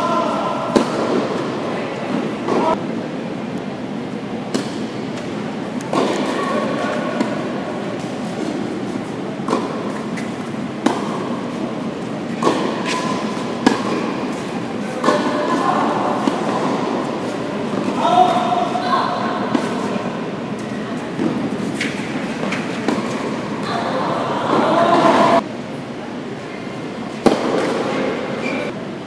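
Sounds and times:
indoor hall background noise: 0.0s - 29.0s
tennis rackets striking ball: 0.6s - 2.8s, 4.5s - 20.1s, 21.2s - 23.9s, 27.1s - 28.2s.

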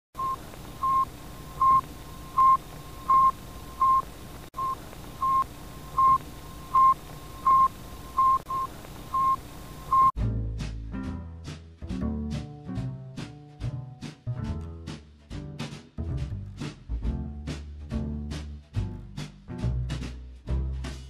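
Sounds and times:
faint hiss: 0.2s - 10.1s
short electronic beeps: 0.2s - 10.1s
music with double bass: 10.2s - 21.0s.

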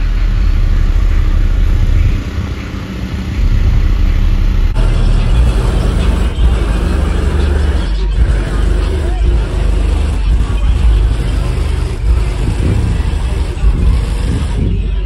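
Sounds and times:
car engine running: 0.0s - 15.0s.

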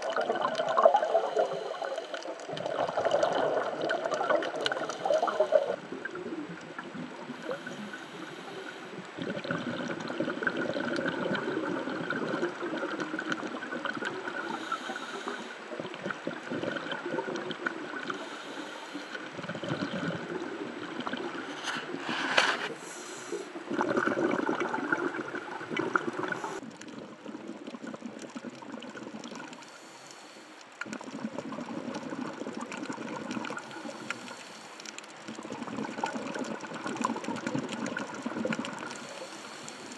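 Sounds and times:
bubbles gurgling: 0.0s - 15.1s, 15.7s - 18.4s, 19.2s - 22.2s, 23.5s - 29.6s, 30.8s - 34.4s, 35.0s - 39.2s
regulator breathing underwater: 0.9s - 3.8s, 4.4s - 5.9s, 7.3s - 10.3s, 14.3s - 20.6s, 21.3s - 25.2s, 25.8s - 26.7s, 29.5s - 31.0s, 33.4s - 36.6s, 38.7s - 39.9s.

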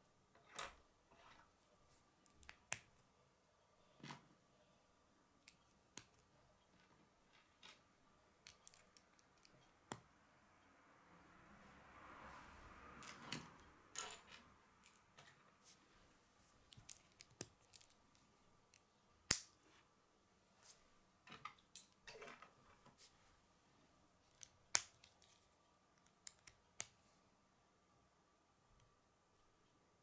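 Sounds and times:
plastic pieces clicking and snapping: 8.4s - 10.0s, 16.7s - 18.0s.

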